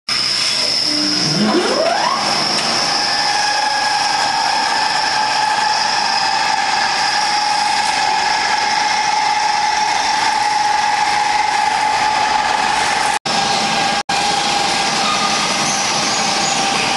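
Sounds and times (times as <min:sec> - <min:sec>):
electric motor whining: 0:00.5 - 0:13.1.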